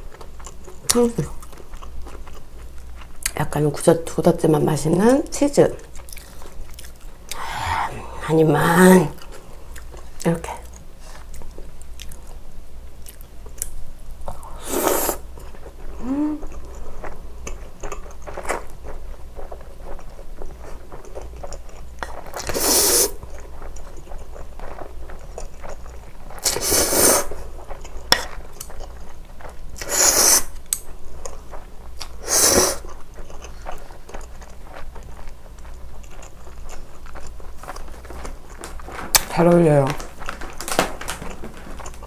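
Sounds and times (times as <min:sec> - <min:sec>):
chewing food: 0:00.0 - 0:14.5, 0:15.3 - 0:42.0
slurping noodles: 0:14.6 - 0:15.3, 0:22.4 - 0:23.2, 0:26.4 - 0:27.4, 0:29.8 - 0:30.5.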